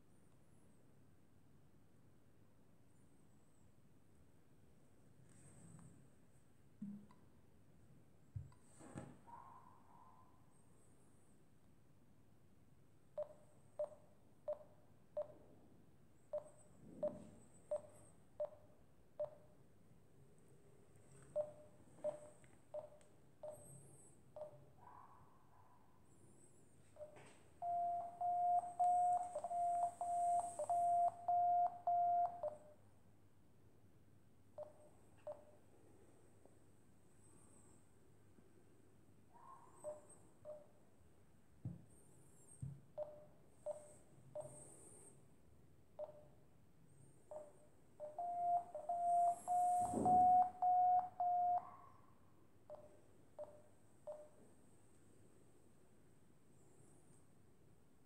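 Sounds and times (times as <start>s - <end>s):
variometer app quick beeps: 27.0s - 32.6s, 47.3s - 51.6s, 52.7s - 54.4s.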